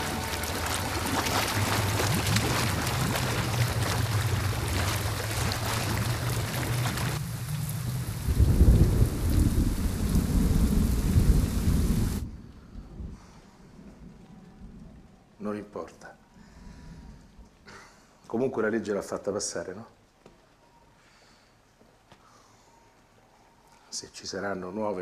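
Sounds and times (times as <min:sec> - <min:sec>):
heavy rain splashing on pavement: 0:00.0 - 0:12.3
thunder rumbling: 0:00.0 - 0:15.4.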